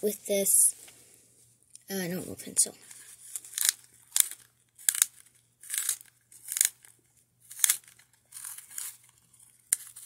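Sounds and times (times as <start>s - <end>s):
pencil sharpener shaving wood: 2.9s - 6.8s, 7.5s - 9.0s.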